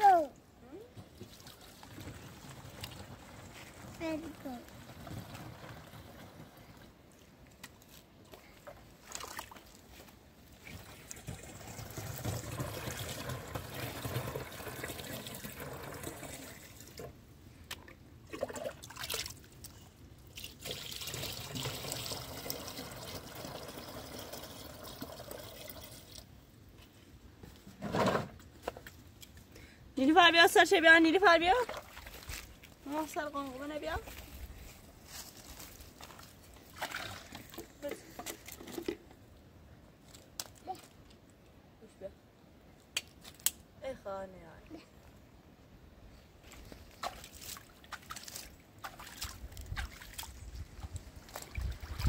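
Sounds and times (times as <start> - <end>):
water trickling and pouring: 1.1 - 7.2, 10.6 - 17.1, 18.3 - 26.4.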